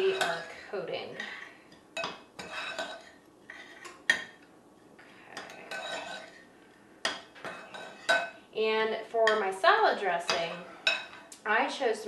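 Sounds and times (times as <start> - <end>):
spoon scraping ceramic bowl: 2.0 - 4.4, 5.4 - 6.5, 7.5 - 8.3.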